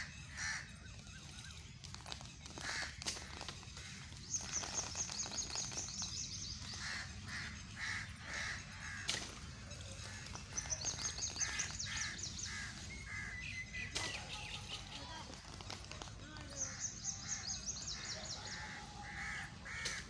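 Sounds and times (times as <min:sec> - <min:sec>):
harsh bird caws: 0:00.0 - 0:01.3, 0:06.7 - 0:14.0, 0:16.6 - 0:20.0
high bird twittering: 0:09.7 - 0:15.6.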